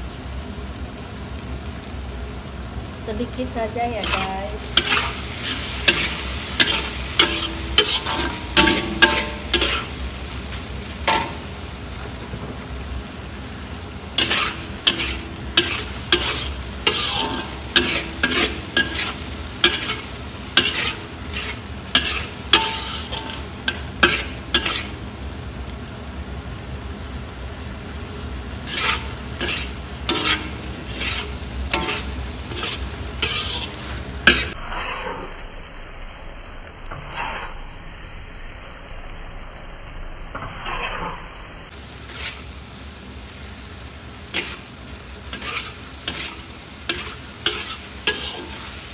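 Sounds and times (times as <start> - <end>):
food sizzling: 0.0 - 48.9
metal spatula scraping wok: 3.8 - 12.9, 14.0 - 25.2, 28.6 - 35.4, 36.9 - 37.8, 40.3 - 42.8, 44.3 - 48.9.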